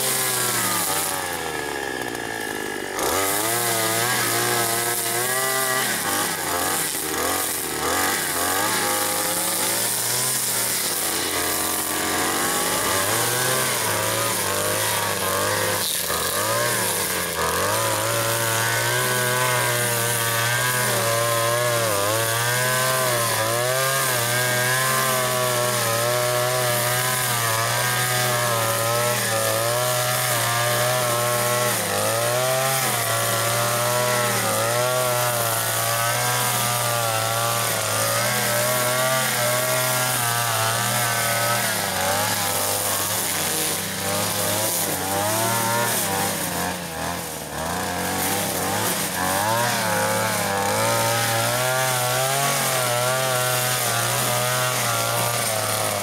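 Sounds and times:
chainsaw cutting wood: 0:00.0 - 0:56.0.

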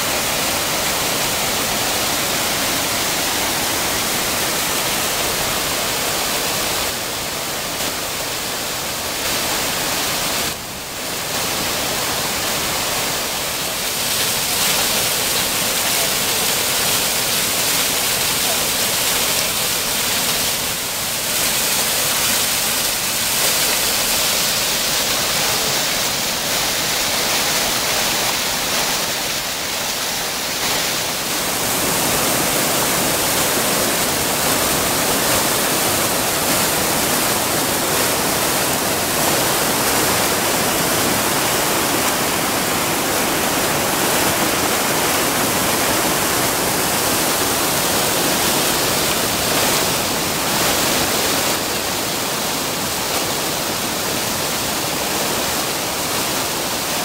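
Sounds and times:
water rushing and cascading: 0:00.0 - 0:57.0.

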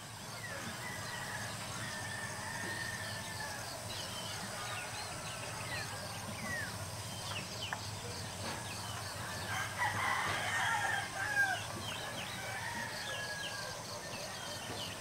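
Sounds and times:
small birds chirping: 0:00.0 - 0:15.0
rooster crowing: 0:00.6 - 0:03.8, 0:09.3 - 0:14.0.

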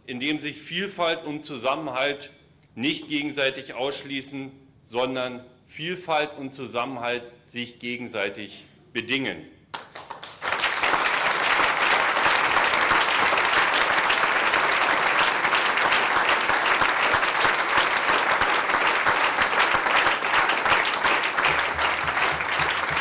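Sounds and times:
audience applauding: 0:09.8 - 0:23.0.

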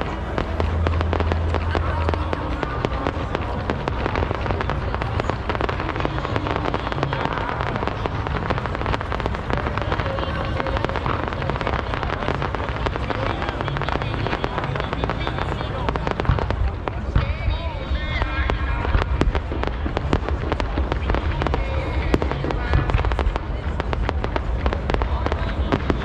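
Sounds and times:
fireworks crackling and popping: 0:00.0 - 0:26.0.

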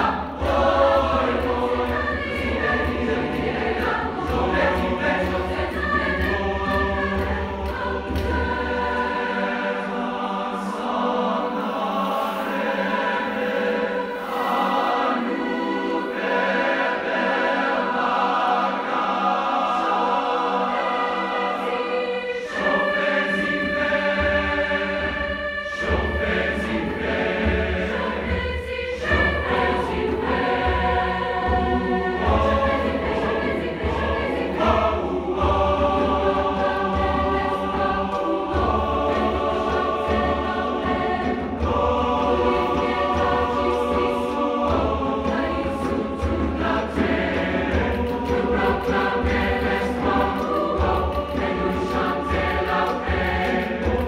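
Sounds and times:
hand drums: 0:00.0 - 0:09.9, 0:22.5 - 0:54.0
choir singing in harmony: 0:00.0 - 0:54.0.

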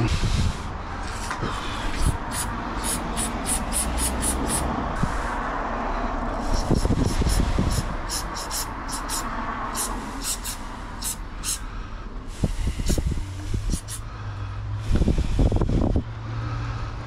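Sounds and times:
aerosol spray can spurts: 0:08.1 - 0:11.6, 0:13.7 - 0:14.0.

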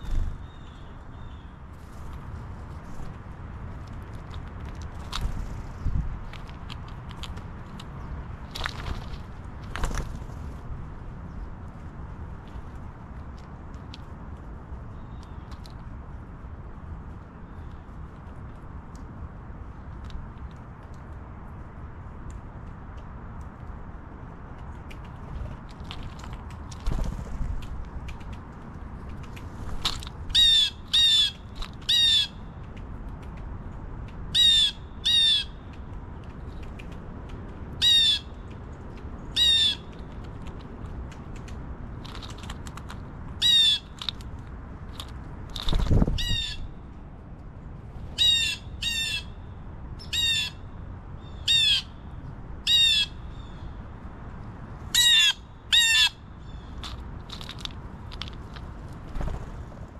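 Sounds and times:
steady low rumble: 0:00.0 - 0:15.1
blue jay calling: 0:30.3 - 0:32.6, 0:34.3 - 0:35.7, 0:37.8 - 0:38.4, 0:39.2 - 0:40.1, 0:43.4 - 0:44.2, 0:46.1 - 0:46.7, 0:48.2 - 0:52.0, 0:52.6 - 0:53.8, 0:54.9 - 0:58.6.

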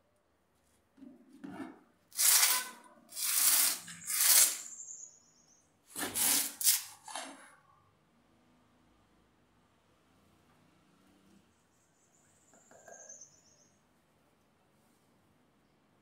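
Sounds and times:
hands scraping soil in pot: 0:01.7 - 0:04.7, 0:06.0 - 0:07.3.

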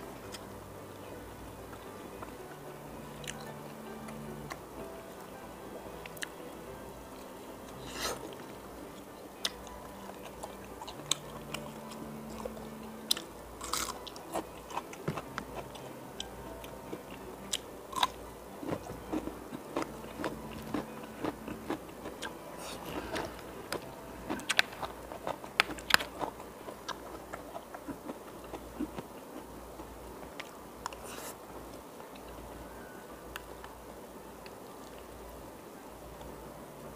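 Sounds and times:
chewing: 0:07.2 - 0:32.4.

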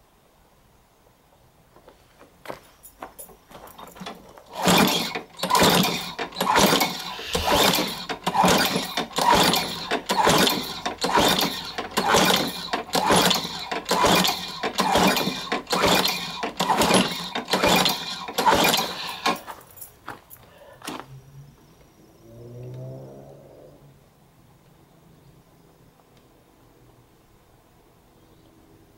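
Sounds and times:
lawnmower pull starter cranking: 0:03.8 - 0:19.6.

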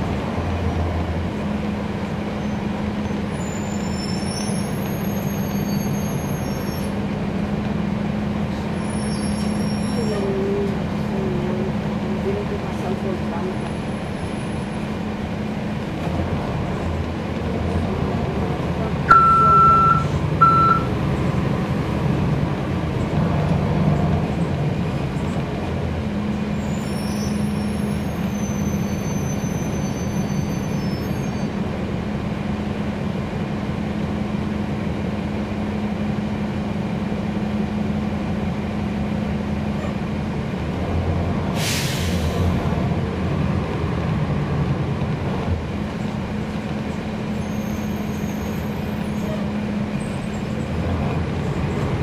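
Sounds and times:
bus diesel engine drone: 0:00.0 - 0:52.0
short beeps: 0:19.1 - 0:20.9
air brake hiss: 0:41.6 - 0:42.5.

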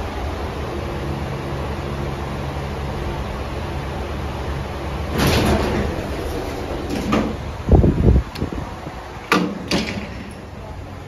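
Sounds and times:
lift car hum: 0:00.0 - 0:11.0
lift doors sliding: 0:04.2 - 0:11.0
heavy clunks: 0:05.1 - 0:08.6, 0:09.2 - 0:10.7.

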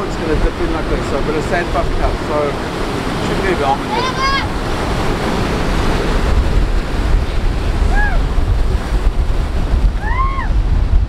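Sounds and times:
breaking surf: 0:00.0 - 0:11.0
wind on microphone: 0:00.0 - 0:11.0.

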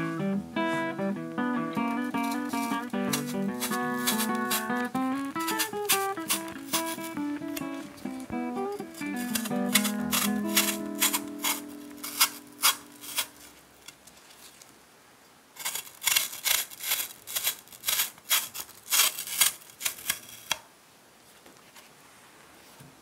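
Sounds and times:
knife peeling apple: 0:01.8 - 0:14.0, 0:15.6 - 0:20.6.

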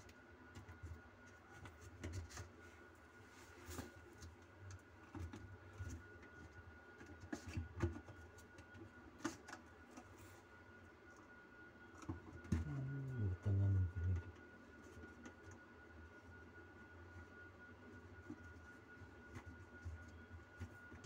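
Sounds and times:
faint steady high tone: 0:10.7 - 0:14.6.

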